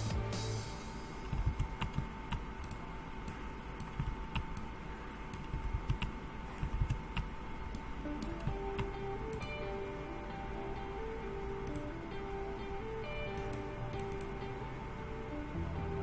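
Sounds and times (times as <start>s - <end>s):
faint steady hum: 0.0s - 16.0s
keyboard typing clicks: 1.2s - 4.7s, 5.3s - 9.6s, 11.6s - 11.9s, 13.3s - 14.3s.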